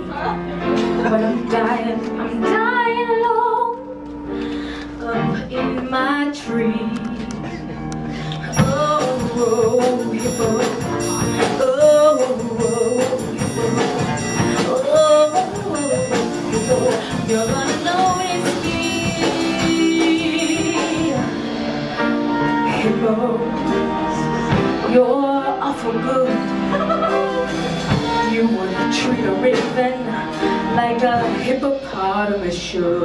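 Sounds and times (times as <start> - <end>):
instrumental accompaniment: 0.0 - 33.0
woman singing a show tune: 8.6 - 21.4.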